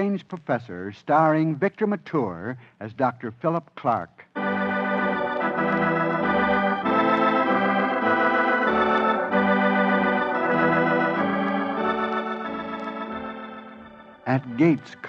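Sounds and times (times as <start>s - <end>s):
sustained organ chords: 4.3s - 15.0s.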